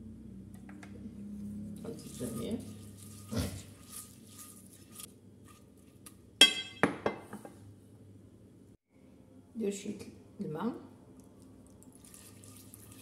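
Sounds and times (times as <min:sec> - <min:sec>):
glassware clinking: 0:06.4 - 0:07.4.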